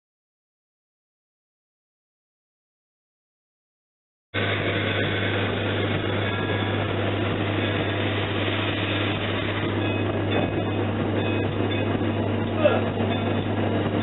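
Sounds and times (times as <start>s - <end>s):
steam locomotive hiss and hum: 4.4s - 14.0s.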